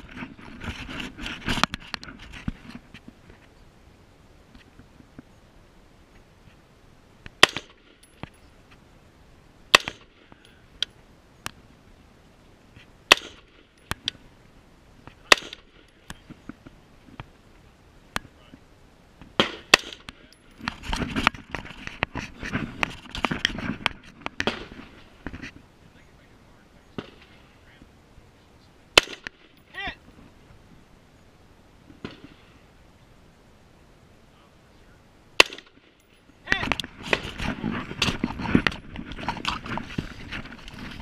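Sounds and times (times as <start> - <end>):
gunshots: 7.4 - 7.9, 9.7 - 10.3, 13.1 - 13.7, 15.3 - 15.9, 19.4 - 20.2, 24.4 - 25.1, 28.9 - 29.6, 35.4 - 35.9.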